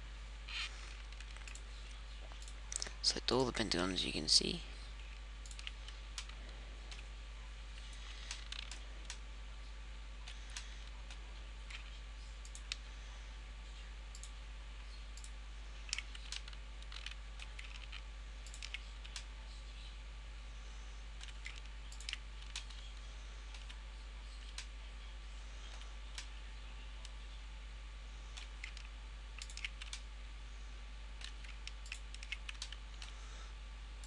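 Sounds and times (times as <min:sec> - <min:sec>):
steady low hum: 0:00.0 - 0:34.0
computer mouse clicking: 0:01.0 - 0:01.7, 0:05.4 - 0:07.0, 0:10.2 - 0:12.8, 0:14.1 - 0:14.4, 0:15.2 - 0:19.3, 0:21.2 - 0:22.9, 0:28.3 - 0:30.0, 0:31.2 - 0:33.1.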